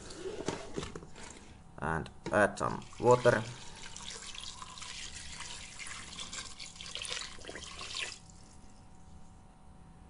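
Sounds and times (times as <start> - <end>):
water pouring and splashing: 2.7 - 8.6.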